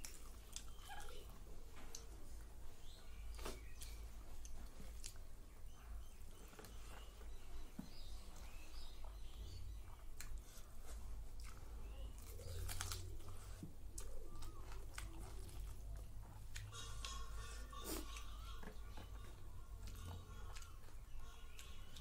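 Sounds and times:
wet chewing and mouth clicks: 0.0 - 2.1, 2.8 - 5.3, 6.0 - 22.0
dove cooing: 11.8 - 22.0.

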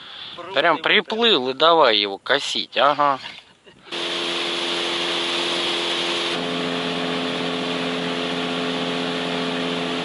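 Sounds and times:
outboard motor running: 3.9 - 10.0.

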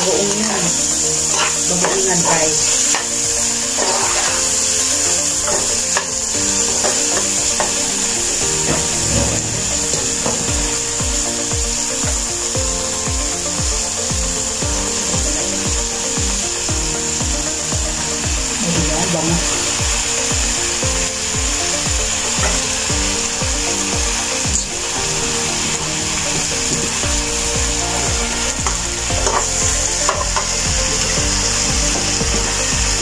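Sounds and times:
background music: 0.0 - 33.0
food sizzling: 0.0 - 33.0
metal spatula scraping a wok: 1.2 - 7.8
low regular beat: 6.0 - 33.0.

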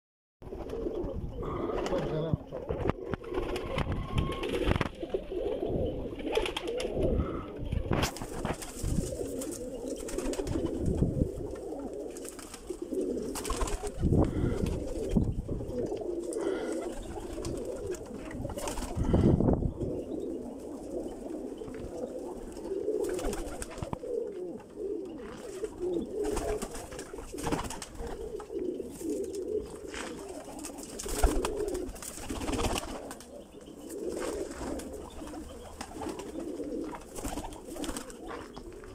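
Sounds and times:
pigeons cooing: 0.4 - 38.9
wings fluttering and clapping: 1.8 - 5.2, 6.2 - 15.2, 16.3 - 19.2, 23.0 - 24.0, 25.2 - 33.3, 34.1 - 38.9.

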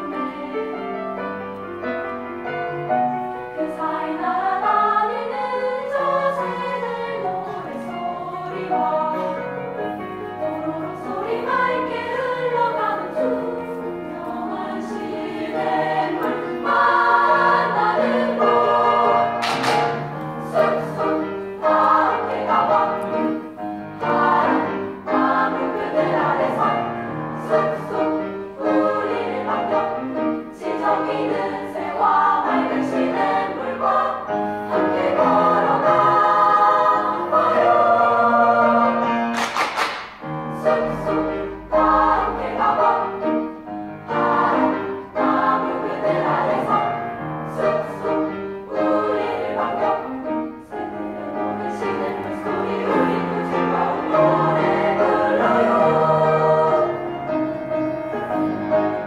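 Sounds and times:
girls' choir singing: 0.0 - 1.4, 3.3 - 59.0.

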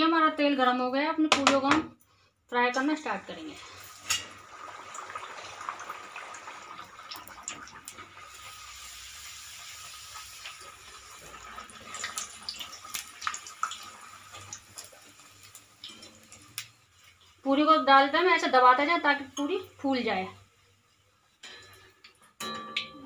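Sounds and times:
bread deep-frying in oil: 2.5 - 23.0.

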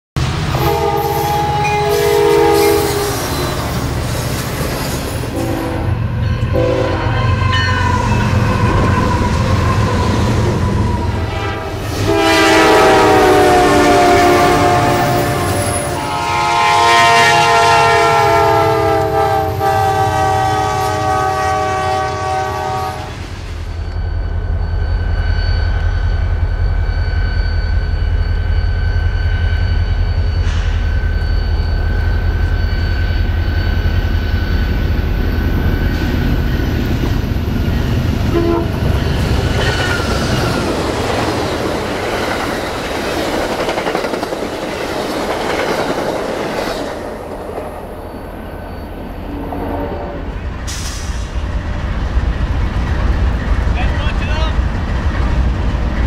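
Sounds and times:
locomotive engines rumbling: 0.2 - 56.0
rolling freight cars: 0.2 - 56.0
locomotive air horn: 0.5 - 3.4, 5.3 - 23.1, 38.2 - 39.0, 49.3 - 50.3.

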